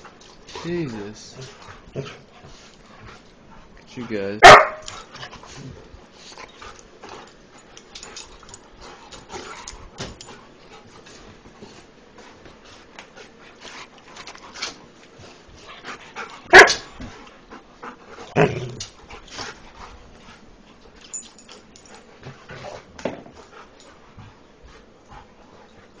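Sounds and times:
dogs barking: 0:04.4 - 0:04.9, 0:16.5 - 0:16.8.

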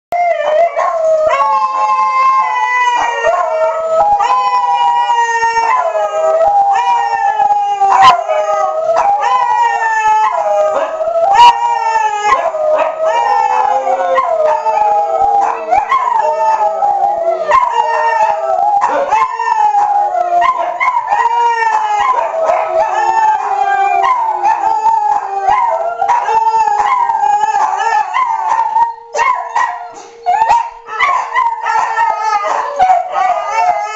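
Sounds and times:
dogs howling: 0:00.2 - 0:33.9
steady siren tone: 0:05.1 - 0:33.9
hound yelping: 0:08.9 - 0:33.9.

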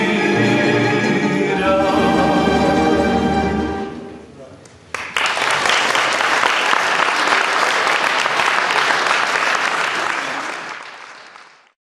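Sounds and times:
audience applauding: 0:04.9 - 0:11.8.

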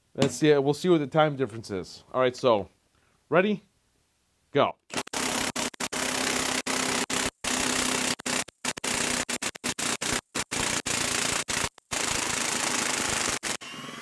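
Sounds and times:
impact wrench hammering: 0:04.9 - 0:13.6.

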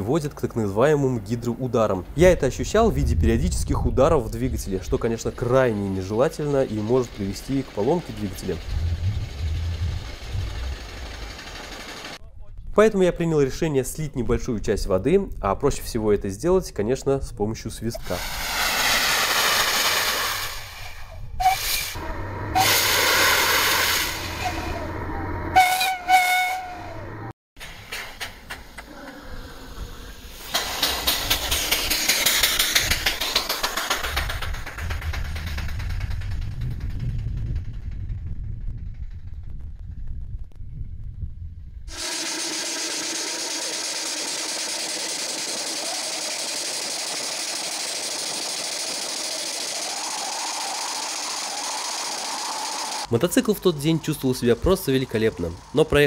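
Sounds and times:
steam hissing: 0:05.8 - 0:12.2, 0:18.0 - 0:25.0, 0:29.5 - 0:36.2, 0:41.9 - 0:56.0
steam whistle note: 0:21.4 - 0:24.9, 0:25.5 - 0:27.1.

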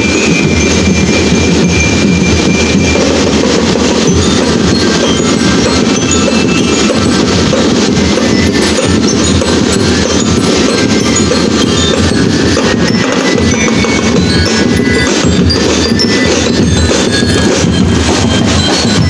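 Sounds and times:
bell lyres chiming: 0:00.0 - 0:19.0
snare and bass drumming: 0:00.0 - 0:19.0.

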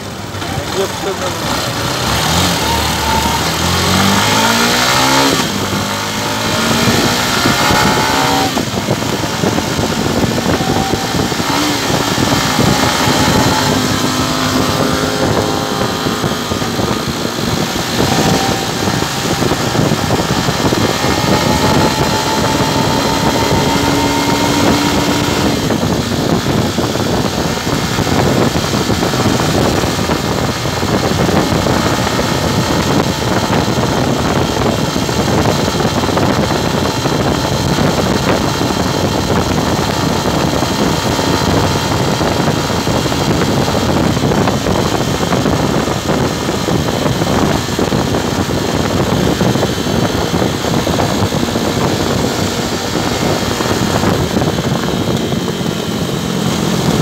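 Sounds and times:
motorcycle engine accelerating: 0:00.0 - 0:57.0
rush of passing air: 0:01.7 - 0:57.0.

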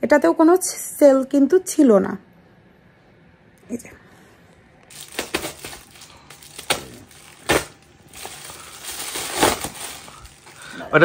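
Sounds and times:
packaging rustling: 0:04.9 - 0:11.0.

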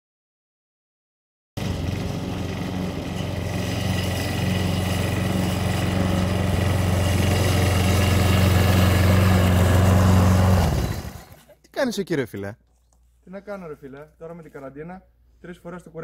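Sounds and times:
lawn mower running: 0:01.6 - 0:11.4.

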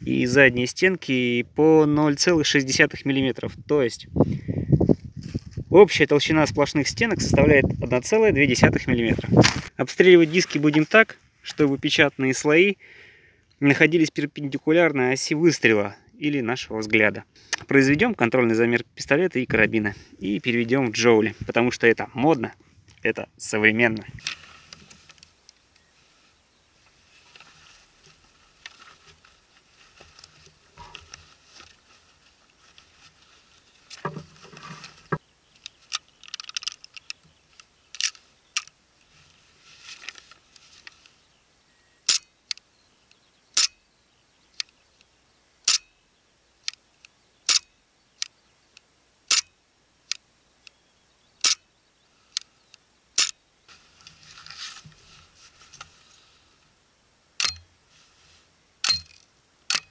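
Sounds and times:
handling clicks and rustling: 0:09.2 - 0:12.0, 0:23.8 - 0:25.9, 0:26.8 - 0:41.2, 0:58.8 - 0:59.9.

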